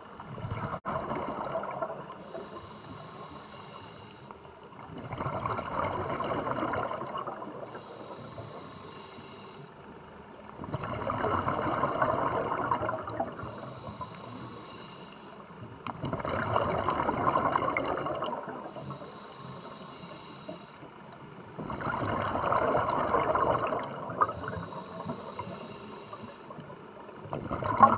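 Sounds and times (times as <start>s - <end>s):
bubbling exhale through regulator: 0.3s - 9.7s, 10.6s - 20.8s, 21.6s - 27.9s
hissing inhale through regulator: 2.1s - 4.5s, 7.6s - 9.9s, 13.3s - 15.6s, 18.6s - 21.1s, 23.3s - 27.1s.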